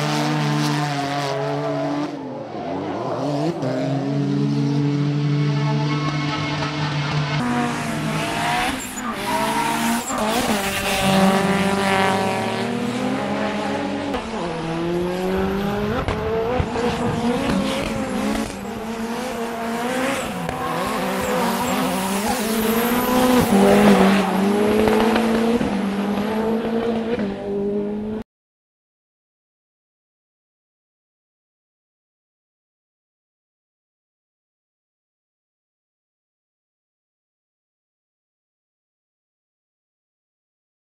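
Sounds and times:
car engines revving hard: 0:00.0 - 0:28.2
tyres screeching: 0:08.0 - 0:10.9, 0:19.8 - 0:25.0.

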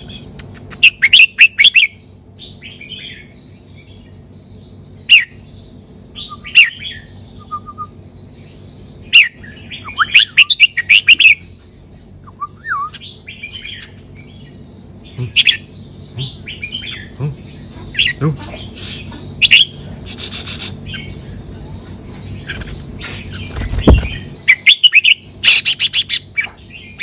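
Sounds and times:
bird singing whistled notes: 0:06.1 - 0:08.1, 0:12.2 - 0:14.3.

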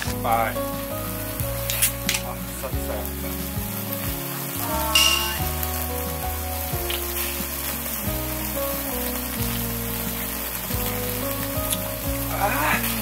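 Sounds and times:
background music: 0:00.0 - 0:13.0
meat sizzling on a grill: 0:00.0 - 0:13.0.

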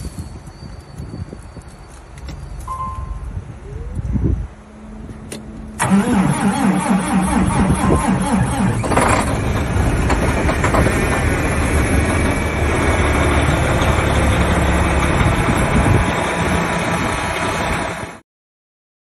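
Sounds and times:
diesel truck engine idling: 0:05.0 - 0:18.2.

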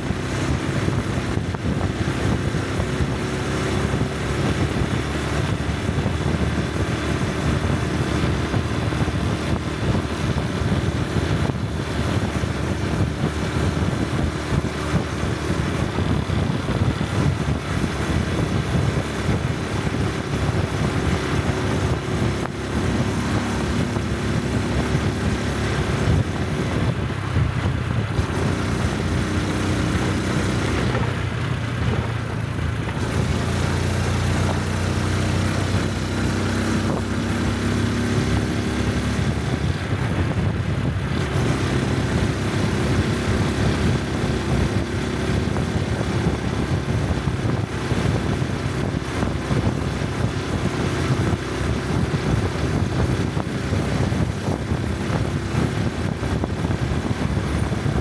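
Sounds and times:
rushing noise: 0:00.0 - 0:35.9
motorcycle engine running: 0:00.0 - 0:58.0.

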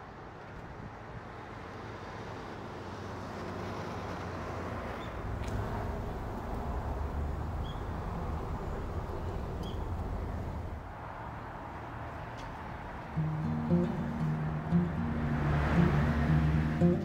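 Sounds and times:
acoustic guitar music: 0:13.2 - 0:17.0.

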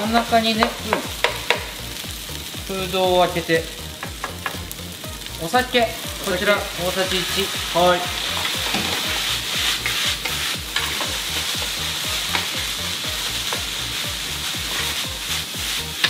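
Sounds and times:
rice sizzling in a frying pan: 0:00.0 - 0:16.0
wooden spatula scraping pan: 0:07.2 - 0:12.7, 0:14.4 - 0:16.0.

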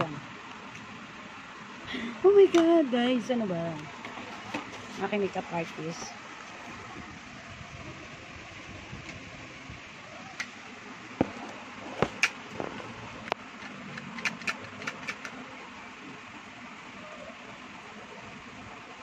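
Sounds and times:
steady background hiss: 0:00.0 - 0:19.0
handling clicks and knocks: 0:12.0 - 0:15.4.

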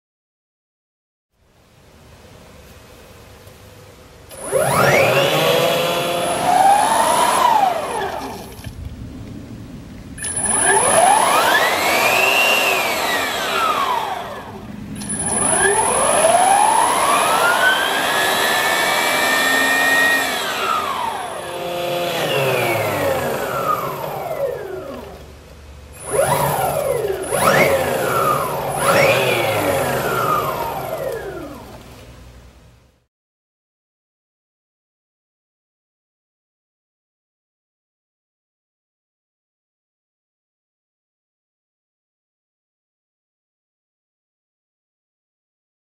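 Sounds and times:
electric motor whine spinning up: 0:04.3 - 0:08.7, 0:10.2 - 0:25.3, 0:25.9 - 0:31.8.

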